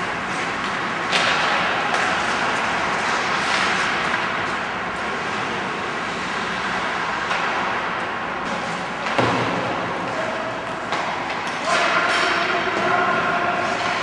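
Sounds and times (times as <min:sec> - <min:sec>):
skates scraping on ice: 0:00.0 - 0:07.8
stick hitting puck: 0:00.4 - 0:04.5, 0:08.5 - 0:13.0.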